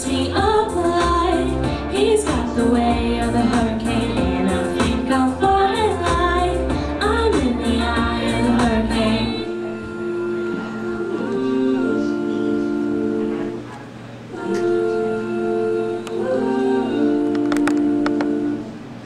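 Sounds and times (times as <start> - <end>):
backing track with bass beat: 0.0 - 9.4
woman singing pop song: 0.0 - 13.6.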